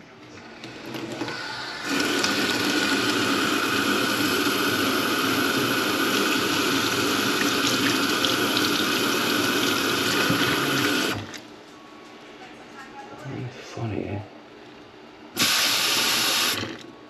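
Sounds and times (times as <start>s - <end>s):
tap running into sink: 9.6s - 11.2s.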